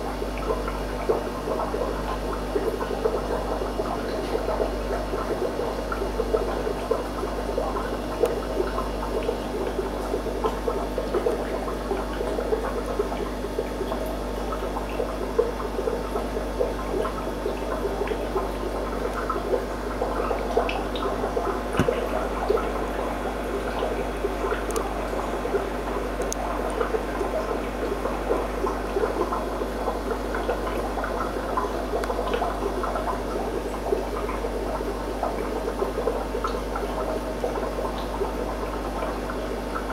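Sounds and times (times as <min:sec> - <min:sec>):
aquarium water bubbling: 0:00.0 - 0:39.9.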